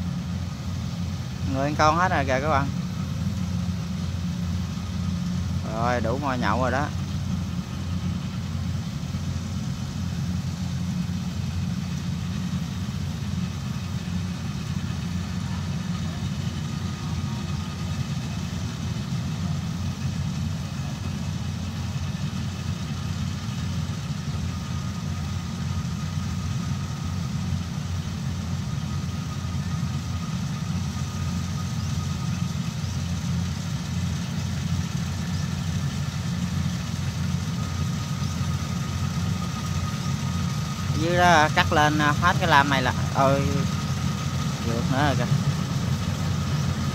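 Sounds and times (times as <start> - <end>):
diesel engine rumble: 0.0 - 46.9
faint steady whine: 0.0 - 46.9.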